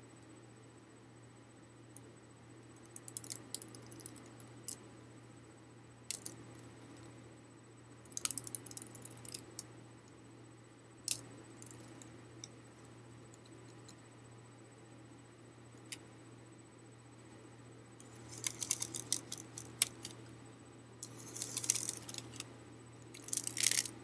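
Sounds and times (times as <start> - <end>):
paper fan ribs clicking and rattling: 18.1 - 20.2, 21.0 - 22.5, 23.1 - 24.0.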